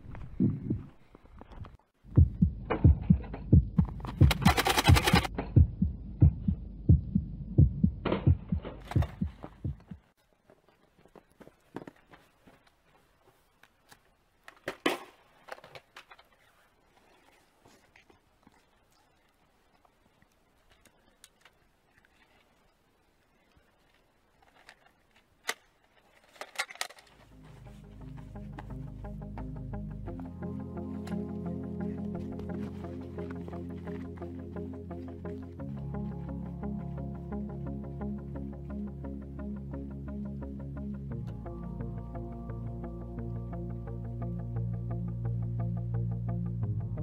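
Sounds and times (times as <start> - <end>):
heartbeat thumps: 2.0 - 10.1
music: 2.1 - 9.9, 27.2 - 47.0.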